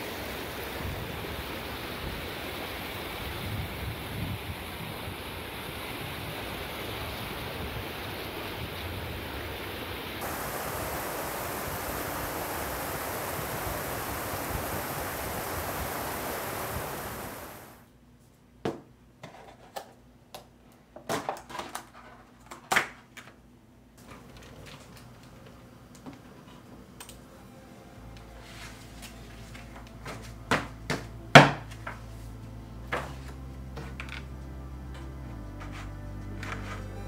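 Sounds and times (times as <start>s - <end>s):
stream rushing over stones: 0.0s - 17.8s.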